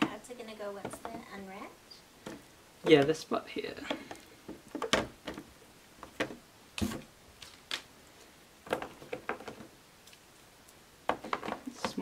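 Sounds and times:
card packs knocking on plastic: 11.1 - 12.0.

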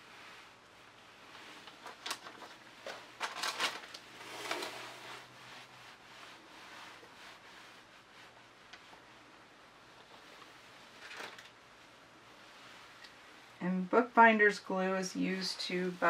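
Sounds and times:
tool scraping across canvas: 4.1 - 5.3.

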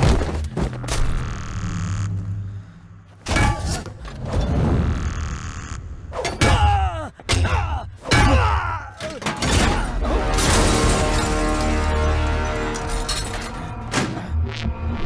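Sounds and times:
man crying in pain: 6.4 - 9.2
dramatic music with held tones: 9.8 - 15.0.

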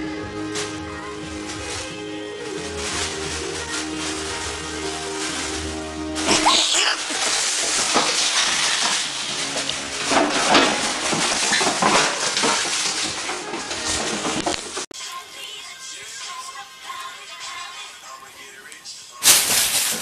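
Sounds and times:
background music: 0.0 - 6.7
plastic bag rustling and crackling: 0.0 - 14.9, 19.2 - 20.0
clattering knocks: 7.1 - 14.9.

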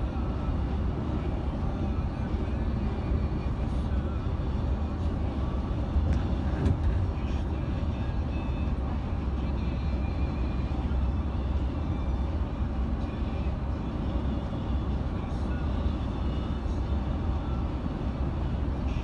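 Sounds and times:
coach diesel engine rumble: 0.0 - 19.0.

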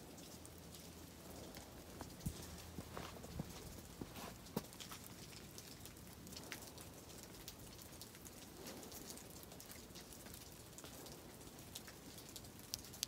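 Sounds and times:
faint outdoor hiss: 0.0 - 13.0
soft ticks: 4.8 - 13.0.

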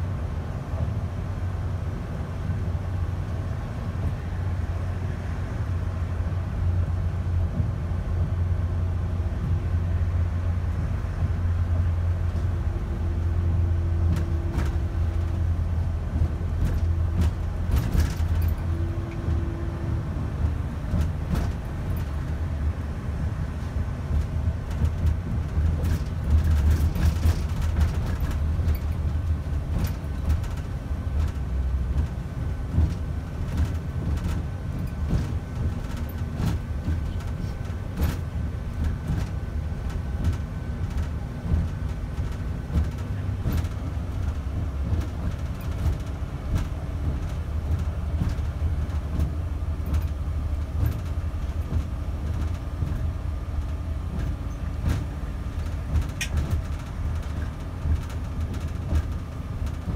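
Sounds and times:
bus engine rumble: 0.0 - 59.9
road noise: 0.0 - 59.9
small rattles and knocks: 16.1 - 19.5, 20.4 - 22.4, 24.0 - 59.9.

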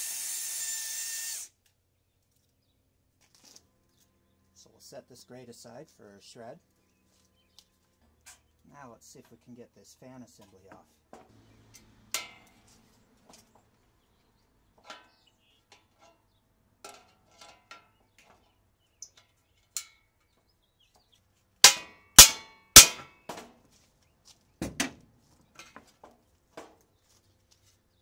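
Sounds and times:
loud sharp metal clangs: 12.0 - 12.6, 21.6 - 23.3.

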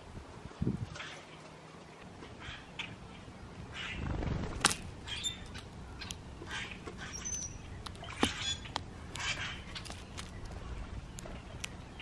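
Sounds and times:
birds calling scratchy notes: 3.7 - 12.0.

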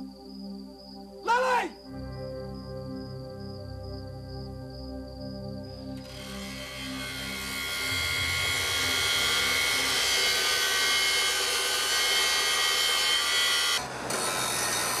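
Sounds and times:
power tool grinding metal: 6.0 - 15.0.

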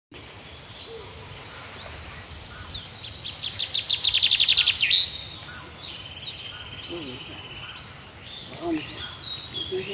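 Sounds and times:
songbirds singing: 0.1 - 9.9.

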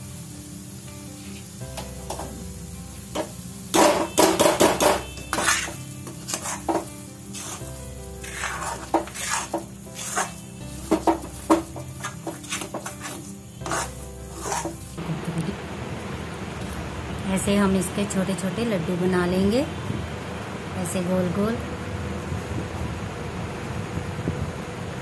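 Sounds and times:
metal spatula scraping a metal pan: 3.2 - 15.0.

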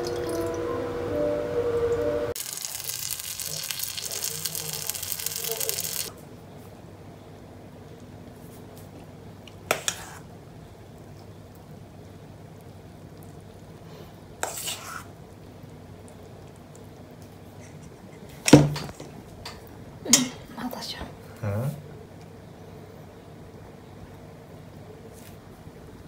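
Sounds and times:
dumplings sizzling in a frying pan: 2.3 - 6.1.

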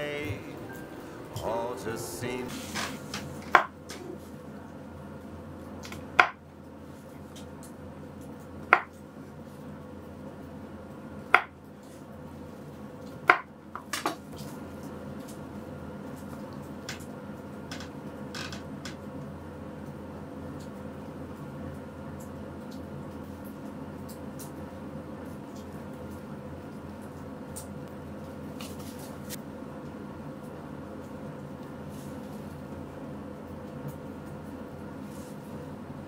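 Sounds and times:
low steady hum: 0.0 - 13.2
knife chopping on wooden board: 6.2 - 6.4, 8.7 - 8.9.

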